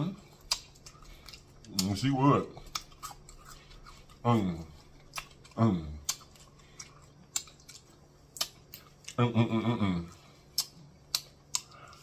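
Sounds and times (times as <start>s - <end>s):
person eating crispy food: 0.0s - 9.4s.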